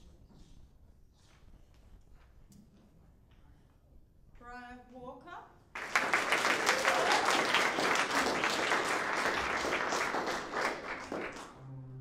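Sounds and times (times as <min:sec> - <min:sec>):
small audience applauding: 0:05.7 - 0:11.8.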